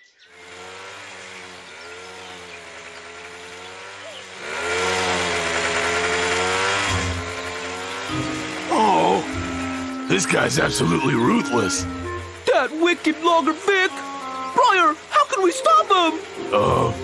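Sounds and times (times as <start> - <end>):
chainsaw cutting tree trunk: 0.2 - 17.0.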